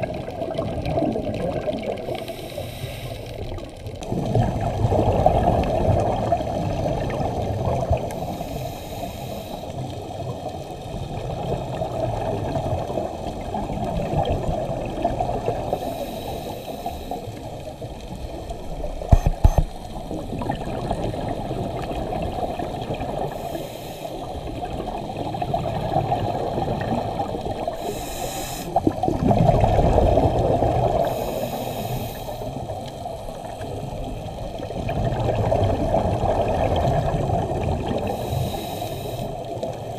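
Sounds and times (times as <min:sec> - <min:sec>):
bubbles gurgling: 0:00.0 - 0:02.4, 0:03.6 - 0:08.3, 0:09.8 - 0:16.0, 0:17.2 - 0:23.5, 0:24.3 - 0:28.1, 0:28.7 - 0:31.5, 0:32.5 - 0:38.6
diver breathing through regulator: 0:02.1 - 0:03.5, 0:08.1 - 0:09.9, 0:15.7 - 0:17.4, 0:23.3 - 0:24.4, 0:27.7 - 0:28.9, 0:30.9 - 0:32.7, 0:38.0 - 0:39.9.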